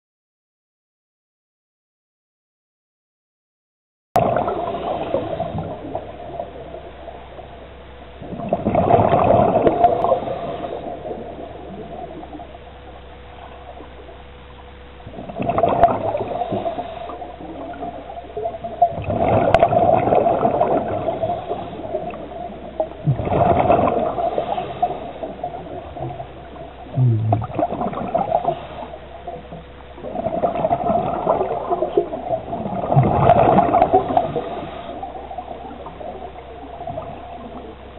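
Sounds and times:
underwater bubbling exhalation: 4.2 - 6.9, 8.2 - 12.5, 15.0 - 37.9
faint steady hum: 4.2 - 37.9.

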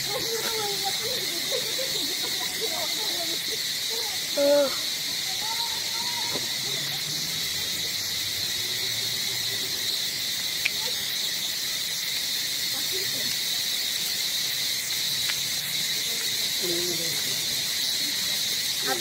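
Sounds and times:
insects droning: 0.0 - 19.0
sharp tick: 10.4 - 10.8, 14.9 - 15.4.

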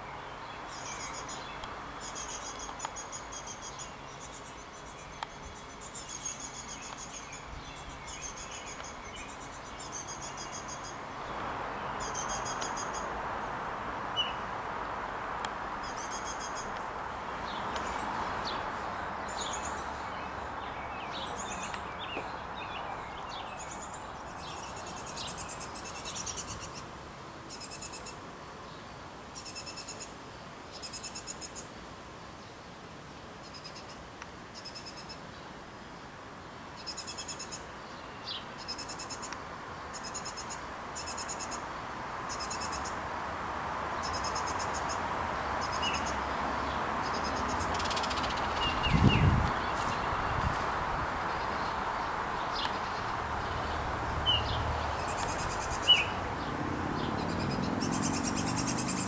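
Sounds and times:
nestlings chattering: 52.6 - 59.0.

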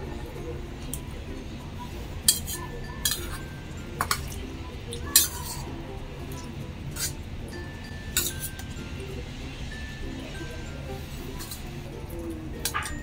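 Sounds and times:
metal spoon clinking in steel bowl: 2.2 - 5.7, 6.3 - 8.8, 11.4 - 11.8, 12.6 - 13.0.

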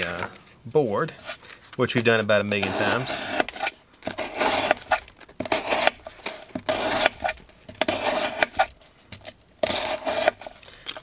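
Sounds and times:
knife slicing cardboard: 2.0 - 10.6.

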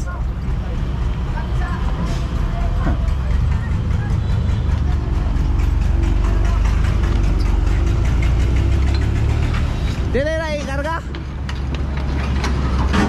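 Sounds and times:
diesel engine low rumble: 0.0 - 13.0.

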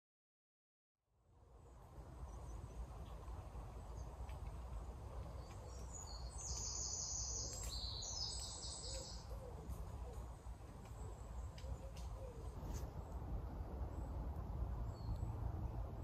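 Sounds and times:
songbird trilling: 5.6 - 9.6.

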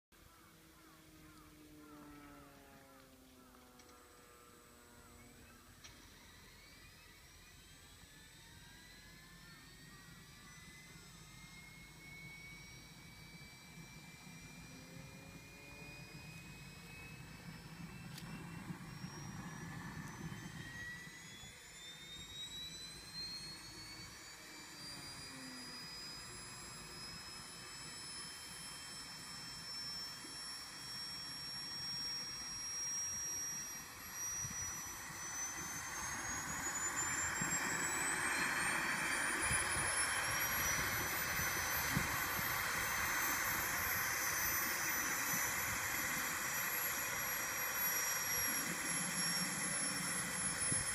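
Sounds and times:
helicopter turbine whine: 0.2 - 50.9.

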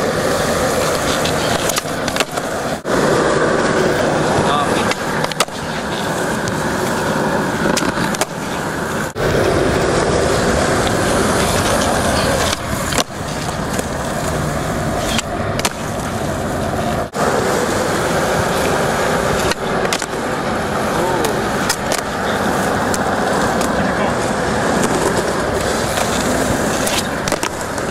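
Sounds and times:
skateboard popping and landing: 0.0 - 27.9
skateboard wheels rolling: 0.0 - 27.9.

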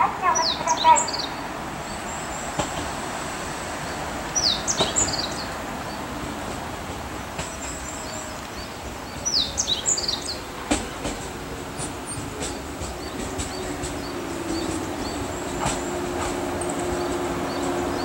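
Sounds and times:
birds chirping: 0.0 - 18.0
electric train running: 10.0 - 18.0.

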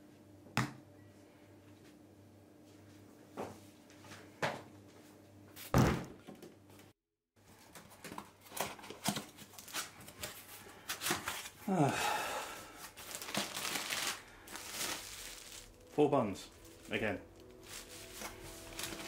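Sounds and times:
cardboard flaps rustling: 17.6 - 19.0.

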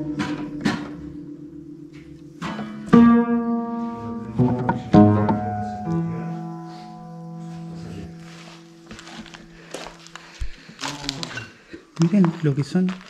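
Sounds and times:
piano notes and chords: 0.0 - 10.3.

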